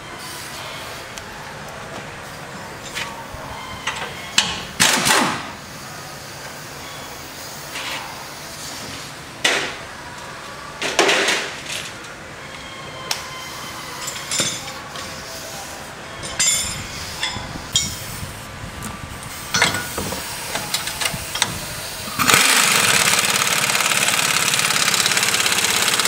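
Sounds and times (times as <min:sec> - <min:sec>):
hand tools clanking on metal: 0:16.2 - 0:18.0, 0:19.5 - 0:21.5.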